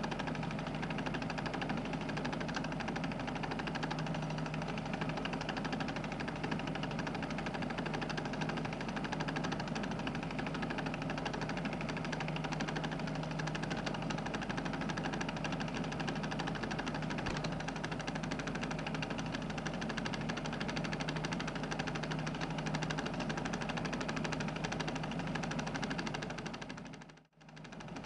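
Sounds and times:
film projector clattering: 0.0 - 28.0.

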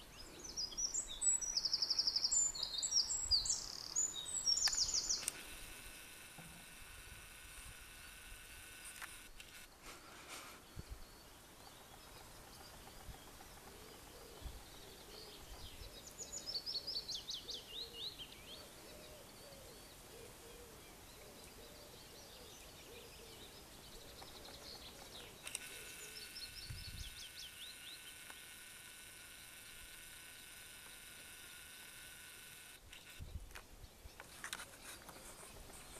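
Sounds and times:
bird singing: 0.0 - 9.6, 10.6 - 35.9.

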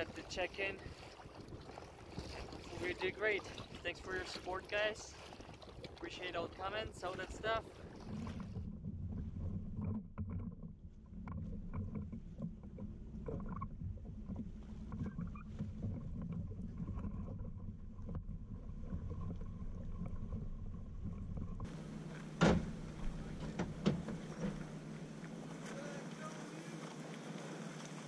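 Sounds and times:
splashes in shallow water: 0.0 - 8.6, 21.6 - 28.0
low rumble of water and wind: 0.0 - 28.0
knocks on a kayak: 22.4 - 22.8, 23.4 - 24.7.

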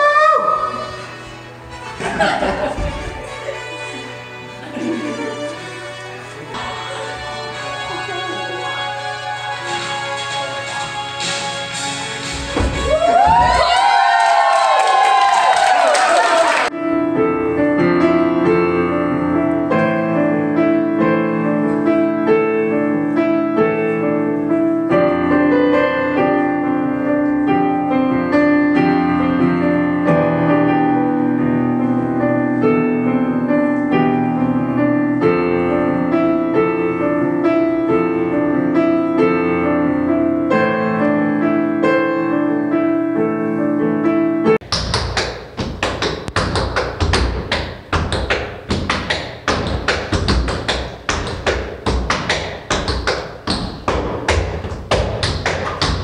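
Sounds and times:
piano playing chords and melody: 0.0 - 15.2, 16.7 - 56.0
tap shoes on wooden floor: 44.6 - 56.0.

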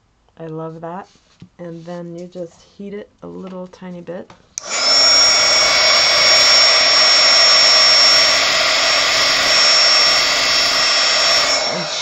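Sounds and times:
heat gun blowing air: 4.6 - 12.0.

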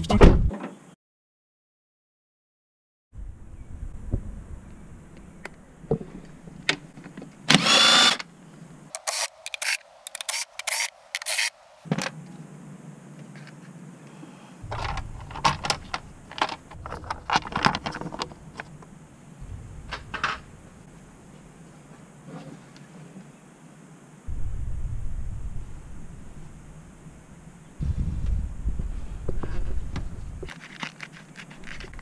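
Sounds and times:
cordless power tool whirring: 7.5 - 8.2, 9.0 - 11.5
tool clicks: 9.0 - 11.5.

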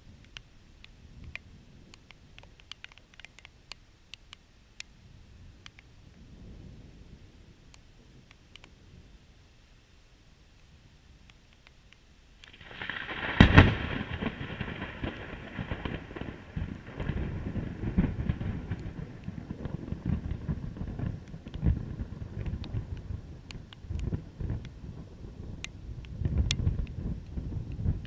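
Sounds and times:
thunder crack and rumble: 12.5 - 28.0.

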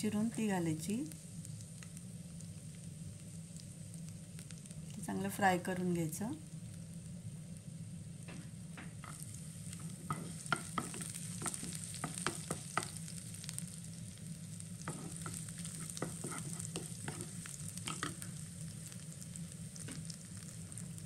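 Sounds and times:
spices sizzling in hot oil: 0.0 - 21.0
wooden spatula scraping pan: 9.9 - 13.0, 14.9 - 18.3.

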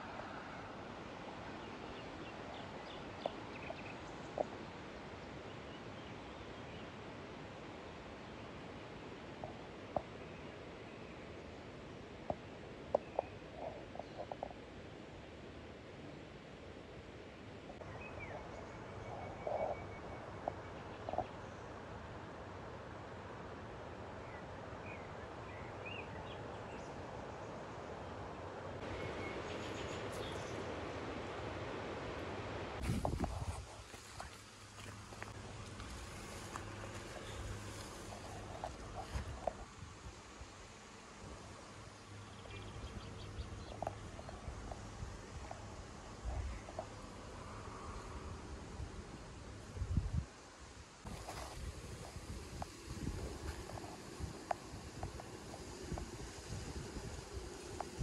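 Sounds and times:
flowing river water: 0.0 - 17.9, 26.4 - 49.7
steady rushing noise: 28.4 - 50.4, 51.0 - 58.0.

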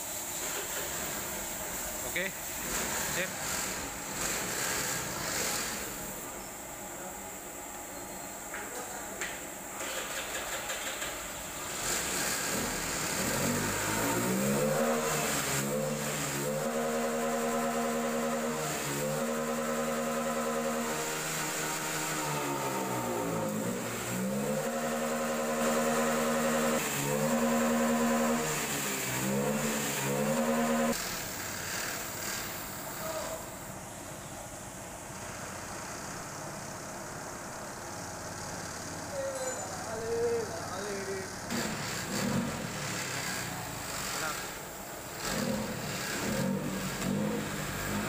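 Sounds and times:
engine revving: 2.6 - 6.0, 11.6 - 32.6, 41.1 - 48.0.

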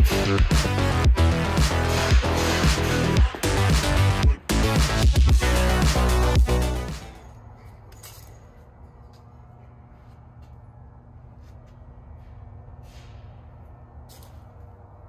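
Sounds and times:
steady low hum: 0.0 - 15.0
light metallic clinks: 7.1 - 9.3.

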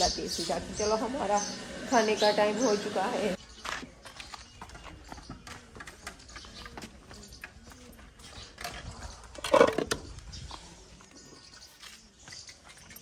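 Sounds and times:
cows moving and feeding: 0.0 - 13.0.

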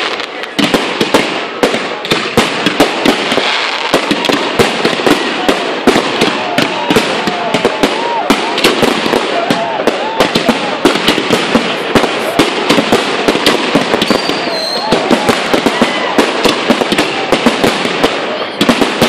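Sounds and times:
firework bangs: 0.0 - 19.0
firework crackling: 0.0 - 19.0
firework whistles: 13.9 - 16.3.

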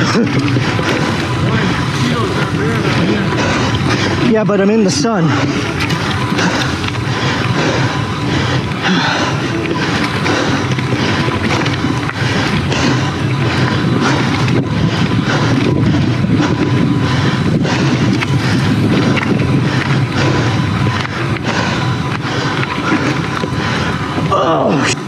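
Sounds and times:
bike rattling and knocking: 0.0 - 25.0
bike tyres on dirt trail: 0.0 - 25.0.

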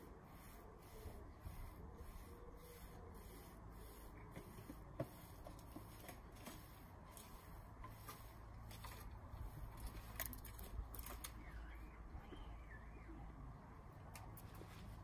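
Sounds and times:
soft ticks and rustles: 4.3 - 11.6.

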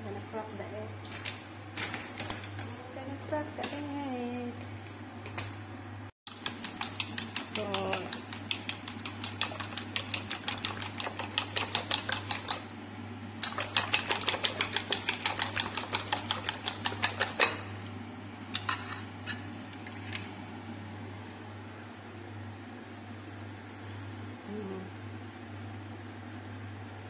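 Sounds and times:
steady low hum: 2.5 - 27.0
fork beating eggs in a bowl: 6.3 - 12.8, 13.4 - 17.7, 18.5 - 20.3.

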